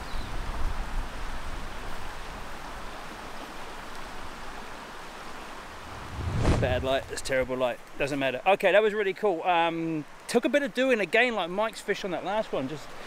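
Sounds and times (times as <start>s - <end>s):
river flowing over stones: 1.1s - 13.0s
low rumble: 5.7s - 7.6s.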